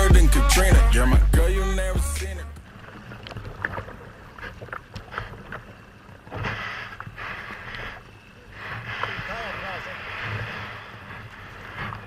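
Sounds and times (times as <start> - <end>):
paddle splashing water: 2.6 - 12.0.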